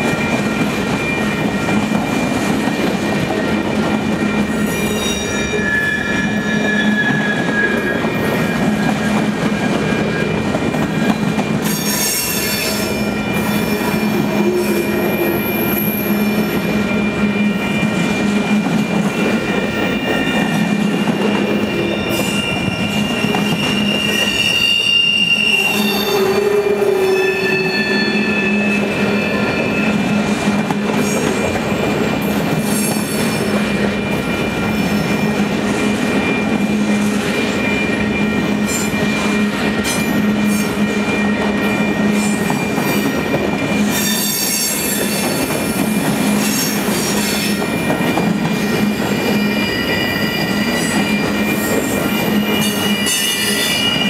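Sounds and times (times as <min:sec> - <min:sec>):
train wheels rumbling on rail: 0:00.0 - 0:54.0
high-pitched wheel squeals: 0:04.2 - 0:09.1, 0:11.7 - 0:31.2, 0:36.1 - 0:54.0.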